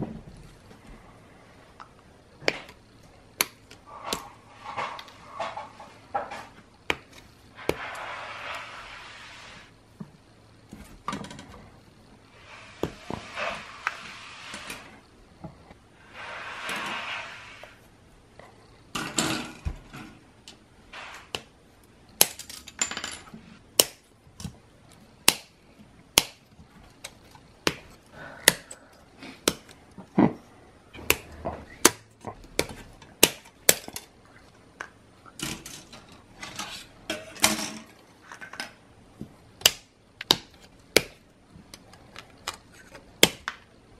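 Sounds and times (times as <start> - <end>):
plastic runners rustling and clattering: 3.9 - 6.7, 35.4 - 38.8.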